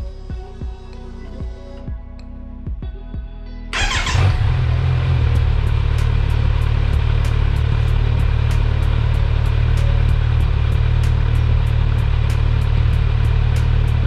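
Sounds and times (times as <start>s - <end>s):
motorcycle engine starting and idling: 3.8s - 14.0s.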